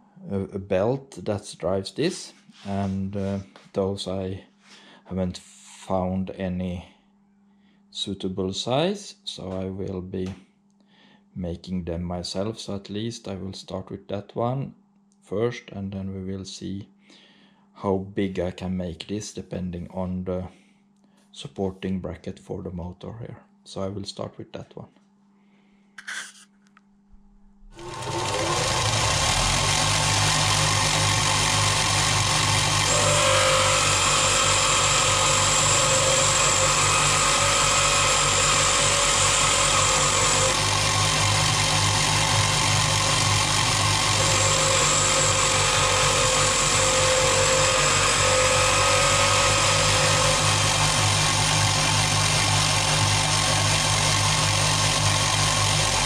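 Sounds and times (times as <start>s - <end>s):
high grinding whine: 27.6s - 56.0s
bench grinder humming: 27.7s - 56.0s.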